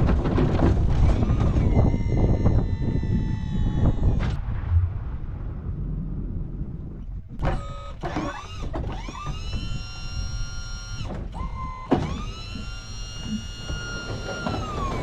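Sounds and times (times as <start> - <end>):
low engine rumble: 0.0 - 8.7
electric motor whining: 1.0 - 4.4, 7.4 - 15.0.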